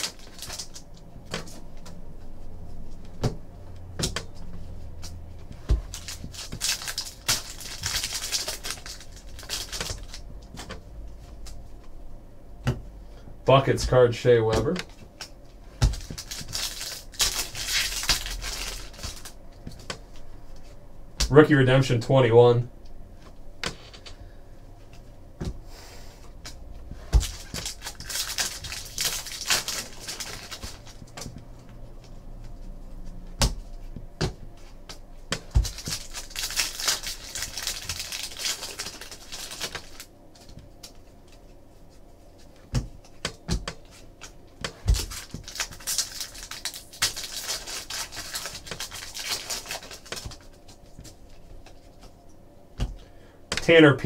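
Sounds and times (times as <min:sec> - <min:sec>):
plastic wrappers crinkling and tearing: 0:00.0 - 0:01.9, 0:05.8 - 0:10.3, 0:14.8 - 0:19.9, 0:27.2 - 0:31.3, 0:35.4 - 0:41.4, 0:43.8 - 0:52.2.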